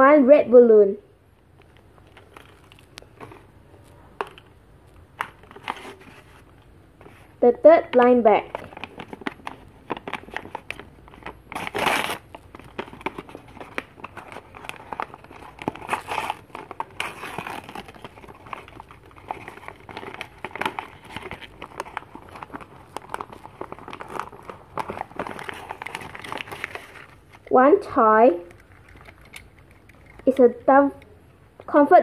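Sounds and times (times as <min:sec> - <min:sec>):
paper bag crinkling: 0:01.6 - 0:04.0, 0:08.4 - 0:27.5.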